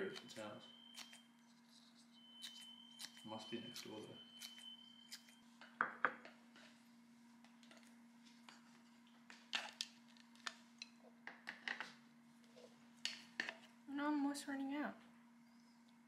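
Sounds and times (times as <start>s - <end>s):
steady low hum: 0.0s - 16.0s
faint high steady tone: 2.0s - 5.5s.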